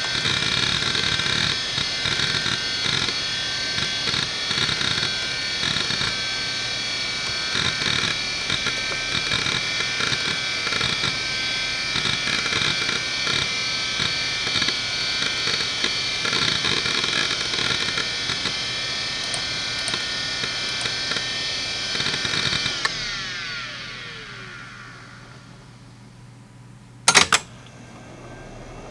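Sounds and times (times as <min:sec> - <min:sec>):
hard drive spinning whine: 0:00.0 - 0:28.9
hard drive seek clicks: 0:19.2 - 0:21.2.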